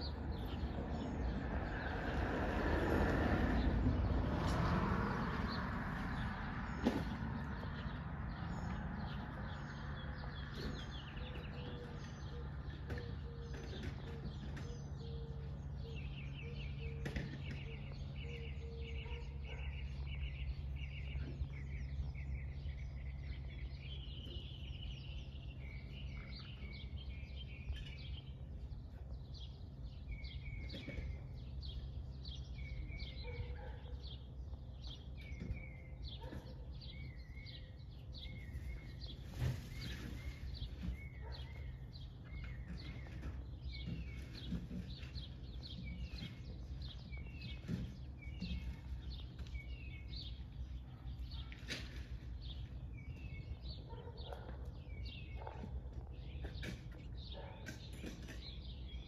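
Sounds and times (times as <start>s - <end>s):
small birds chirping: 0.0s - 59.0s.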